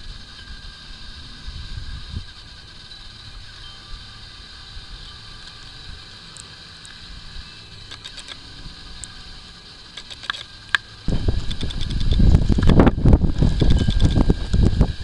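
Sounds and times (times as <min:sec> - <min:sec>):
wind buffeting microphone: 0:11.1 - 0:15.0.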